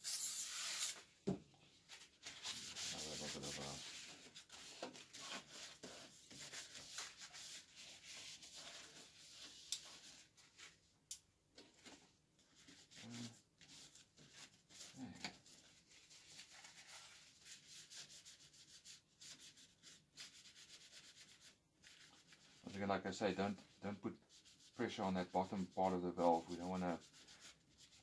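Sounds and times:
short hiss: 0.0s - 1.0s
paper towel wiping steel panel: 2.2s - 10.3s.

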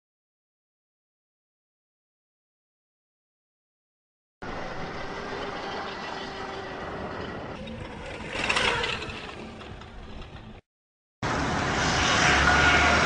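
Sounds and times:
electric motorcycle whine: 4.4s - 10.6s, 11.2s - 13.0s
tyre noise on dirt: 7.6s - 10.6s.

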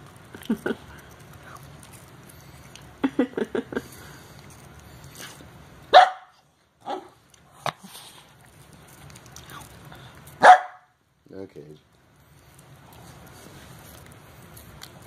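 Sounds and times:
puppy barking: 5.9s - 7.2s, 10.4s - 11.0s.

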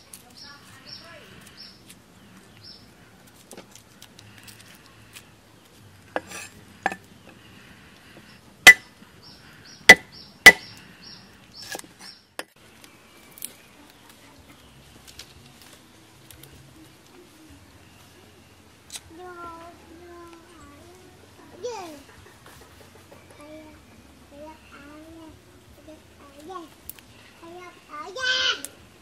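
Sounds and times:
cleaver chopping on wooden block: 8.7s - 8.9s, 9.9s - 10.8s.

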